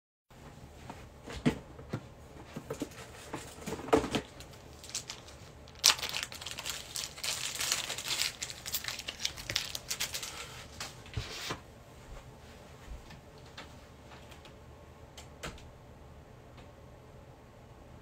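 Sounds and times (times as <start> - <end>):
plastic wrapping tearing and crinkling: 3.5 - 10.6.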